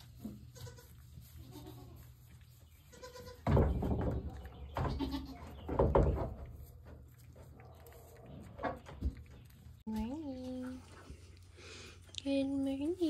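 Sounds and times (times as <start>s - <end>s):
goats bleating: 0.6s - 2.0s, 2.9s - 3.4s, 4.9s - 5.4s.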